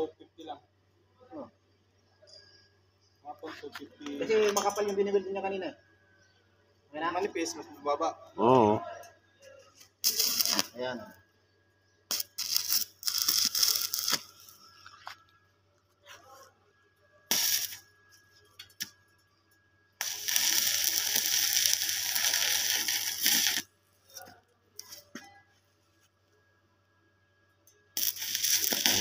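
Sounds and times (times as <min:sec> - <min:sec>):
welding arc crackling: 0:10.0 - 0:11.1, 0:12.1 - 0:15.1, 0:17.3 - 0:19.0, 0:20.0 - 0:25.2, 0:28.0 - 0:29.0.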